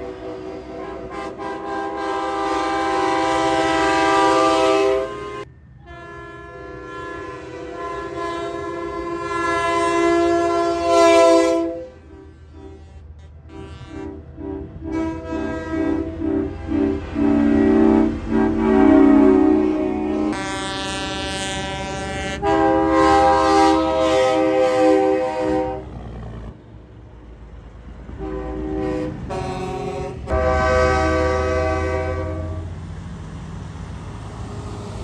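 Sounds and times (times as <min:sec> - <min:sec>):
truck air horns blowing: 0:00.0 - 0:26.2, 0:28.2 - 0:32.8
trucks rumbling past: 0:00.0 - 0:35.0.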